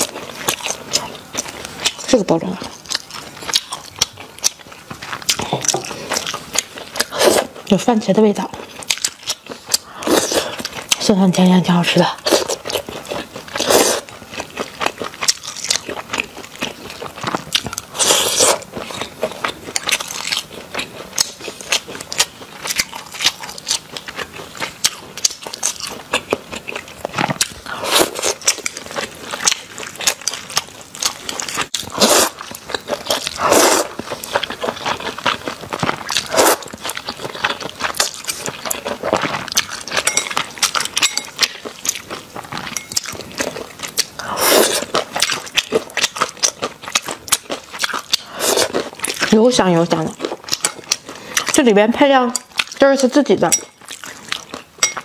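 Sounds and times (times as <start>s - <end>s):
wet chewing with mouth clicks: 0.0s - 55.0s
slurping noodles: 13.6s - 14.1s, 31.8s - 32.4s, 33.1s - 34.3s, 36.1s - 36.7s, 44.2s - 45.0s.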